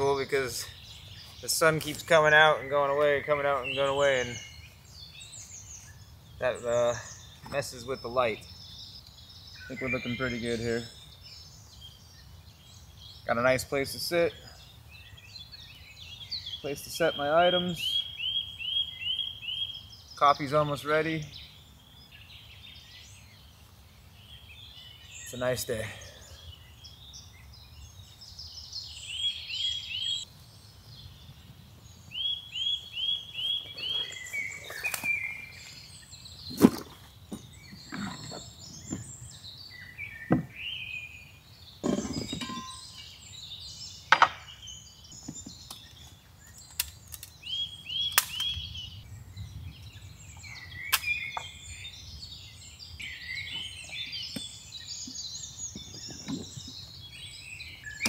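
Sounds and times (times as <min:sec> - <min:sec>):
birds singing and chirping: 0:00.0 - 0:58.0
sharp knocks and clunks: 0:40.2 - 0:40.6, 0:41.8 - 0:42.9, 0:44.1 - 0:44.5.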